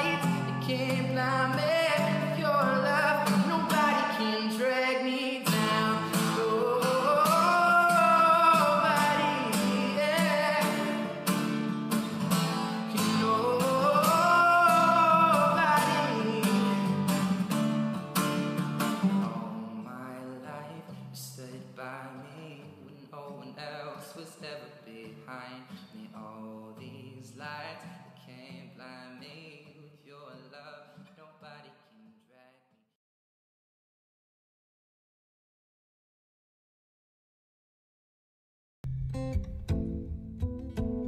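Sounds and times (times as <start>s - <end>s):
person singing long notes: 0.0s - 11.3s, 12.4s - 17.1s
acoustic guitar: 0.0s - 32.2s, 38.8s - 41.0s.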